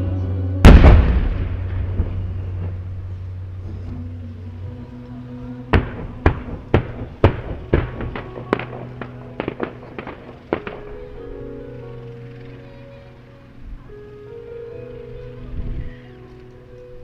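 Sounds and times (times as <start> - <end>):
music with low held notes: 0.0 - 17.0
fireworks bangs: 0.6 - 3.3, 5.7 - 11.6.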